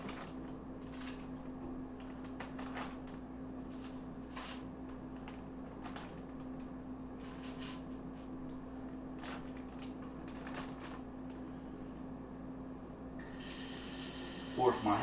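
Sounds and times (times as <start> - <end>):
steady low hum: 0.0 - 15.0
plastic bag crinkling: 9.2 - 11.1.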